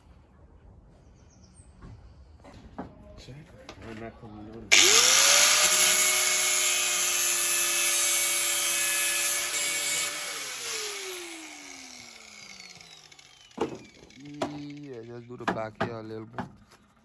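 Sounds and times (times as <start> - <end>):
angle grinder grinding metal: 4.7 - 15.4.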